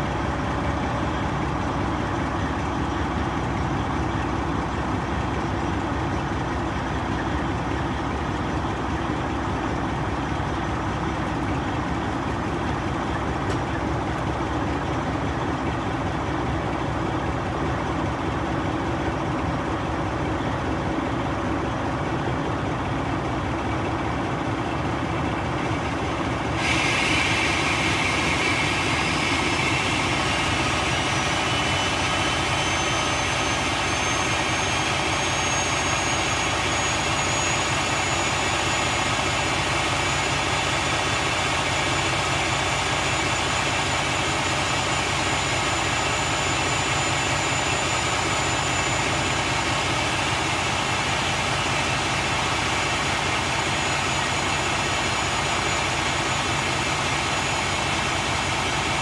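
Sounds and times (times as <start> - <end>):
truck diesel engine idling: 0.0 - 59.0.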